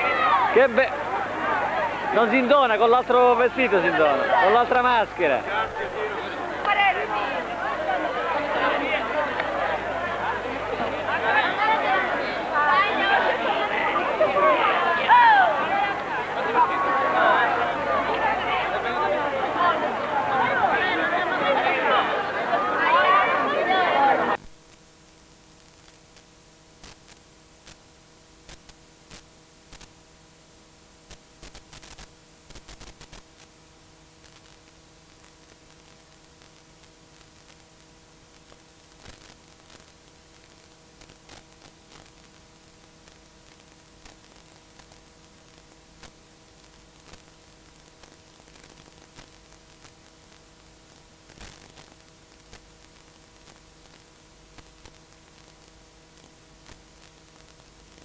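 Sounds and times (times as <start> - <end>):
videotape hiss and hum: 0.0 - 58.0
crackles and clicks: 24.5 - 30.0, 31.0 - 58.0.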